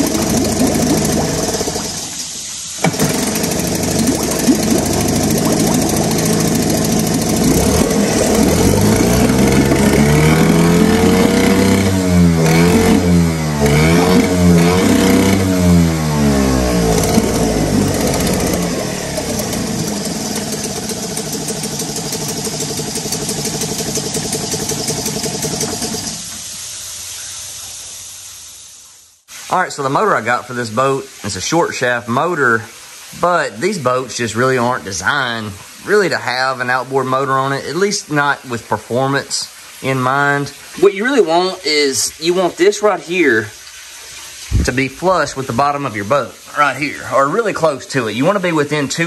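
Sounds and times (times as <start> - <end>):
outboard motor revving: 0.0 - 26.5, 44.4 - 45.8.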